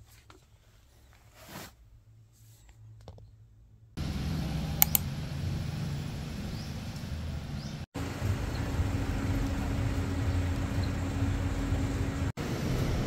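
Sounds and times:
traffic rumble: 0:03.4 - 0:13.0
van engine humming: 0:04.0 - 0:13.0.

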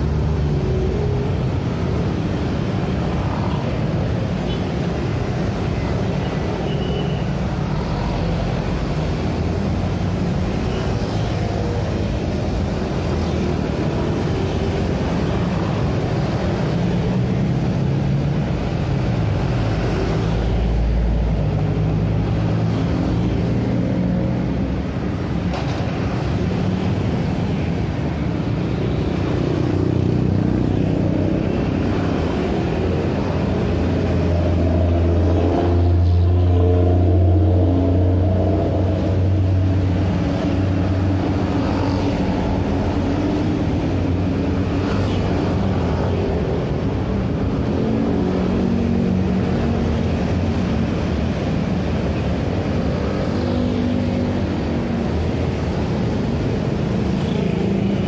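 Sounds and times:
scooters and cars passing: 0:00.0 - 0:58.0
bus engine humming: 0:30.0 - 0:58.0.

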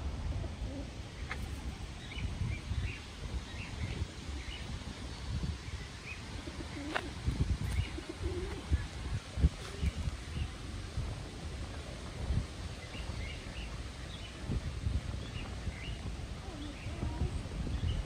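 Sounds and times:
small birds chirping: 0:01.1 - 0:10.6
pigeons cooing: 0:06.3 - 0:09.0.

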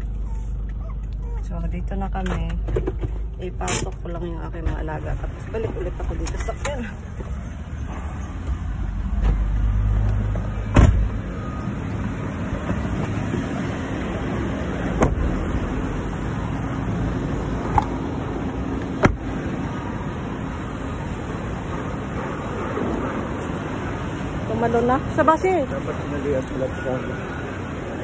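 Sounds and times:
traffic noise: 0:00.0 - 0:28.0
car door opening and shutting: 0:10.2 - 0:11.3, 0:14.8 - 0:15.4, 0:18.8 - 0:19.4.

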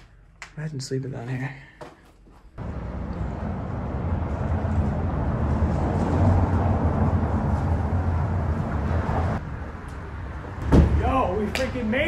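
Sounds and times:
car engine drone: 0:02.6 - 0:10.6.

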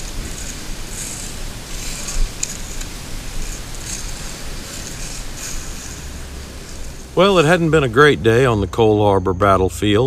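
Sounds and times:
footsteps in dry leaves: 0:00.0 - 0:07.2
metal detector coil rustling leaves: 0:00.0 - 0:09.0.

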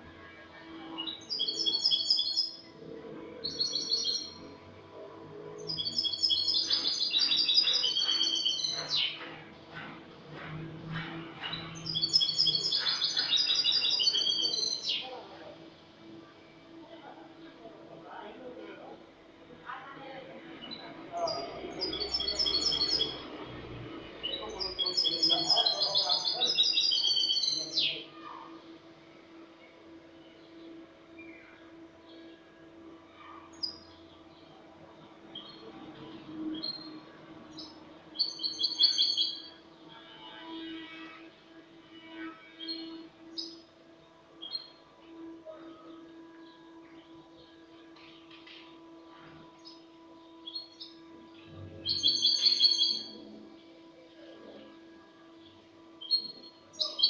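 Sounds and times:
goldfinch twittering song: 0:01.0 - 0:02.7, 0:03.4 - 0:04.5, 0:05.6 - 0:15.1, 0:20.6 - 0:23.4, 0:24.2 - 0:28.0, 0:37.6 - 0:39.5, 0:49.6 - 0:53.3.

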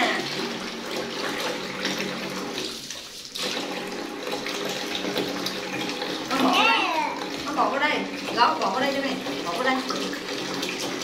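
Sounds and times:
water running into a bath: 0:00.0 - 0:11.0
water splashing: 0:00.0 - 0:11.0.

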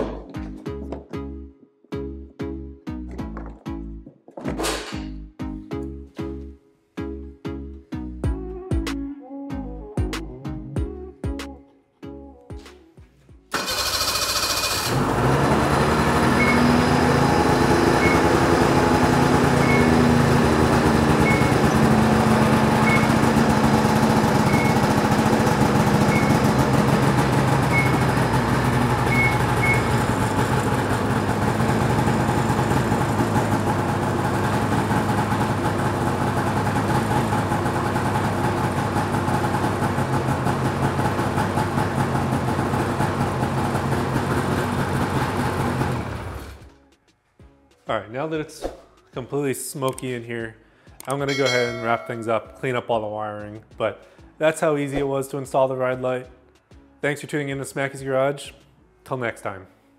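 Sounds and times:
snowmobile engine idling: 0:14.9 - 0:46.6.

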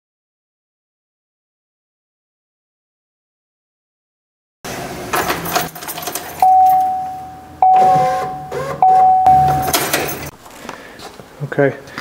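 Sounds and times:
car warning chime dinging: 0:06.4 - 0:10.0.

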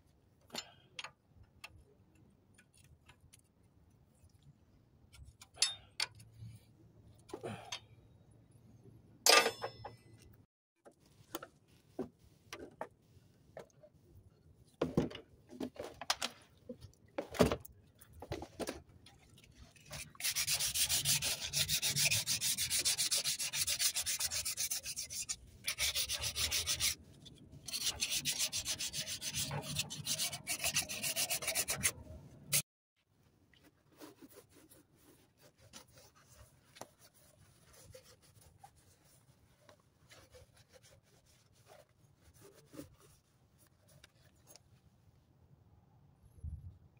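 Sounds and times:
metal part scrubbed by hand: 0:19.8 - 0:32.6.

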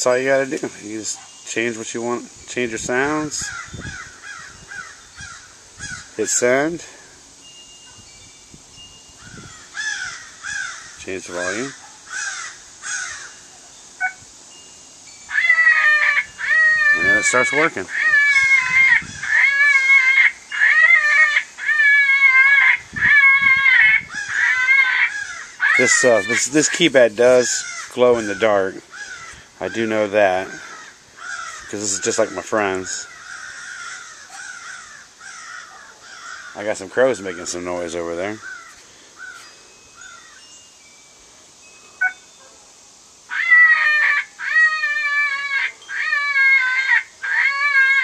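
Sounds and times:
high-pitched animal call from loudspeaker: 0:15.4 - 0:26.5.

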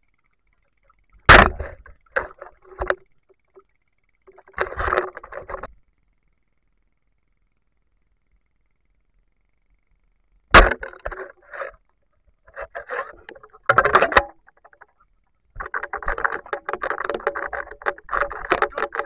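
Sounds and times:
water splashing and sloshing: 0:12.5 - 0:14.9.

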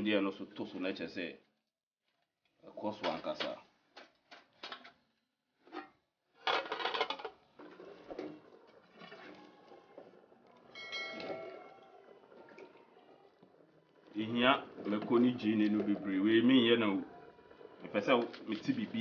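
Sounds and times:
pot lid clinking: 0:10.7 - 0:12.6.

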